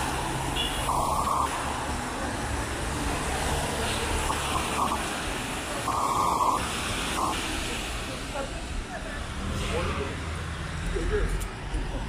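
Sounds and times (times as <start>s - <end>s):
cars passing on wet road: 0.0s - 12.0s.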